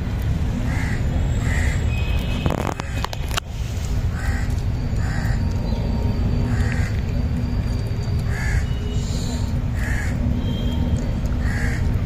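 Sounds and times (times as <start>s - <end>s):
crows cawing: 0.7s - 1.8s, 4.1s - 5.4s, 8.3s - 8.7s, 9.8s - 10.2s, 11.4s - 11.9s.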